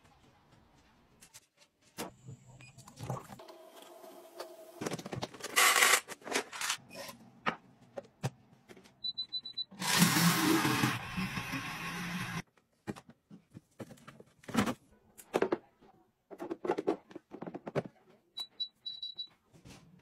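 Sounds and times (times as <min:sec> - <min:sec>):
blender running: 0:09.8 - 0:12.4.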